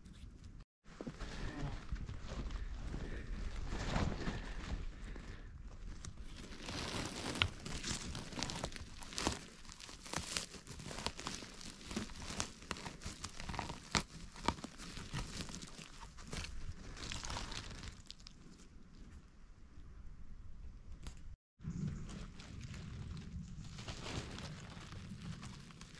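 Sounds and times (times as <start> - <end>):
crackling of dry needles and twigs: 1.0 - 19.2, 20.9 - 25.9
twigs snapping: 5.8 - 18.4.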